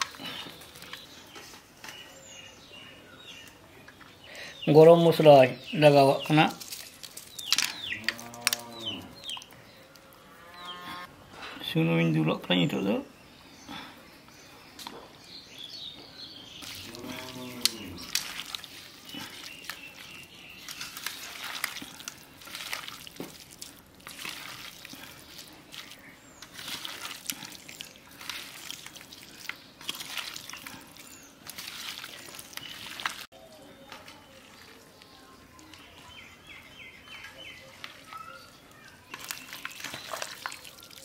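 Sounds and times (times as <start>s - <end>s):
wet squelching of kneaded meat: 16.6s - 33.3s, 37.7s - 41.0s.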